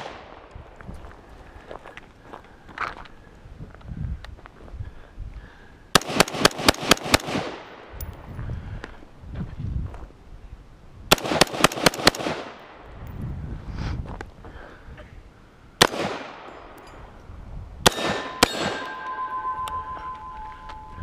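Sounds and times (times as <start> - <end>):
pistol gunshots: 6.0 - 7.8, 11.1 - 12.8, 15.8 - 16.5, 17.8 - 19.0
steel target ringing: 17.9 - 21.0.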